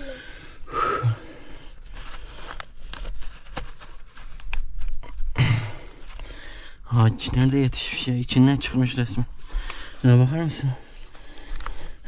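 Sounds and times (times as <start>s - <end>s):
person speaking: 10.0s - 11.0s
crinkling and handling clicks: 11.1s - 11.9s.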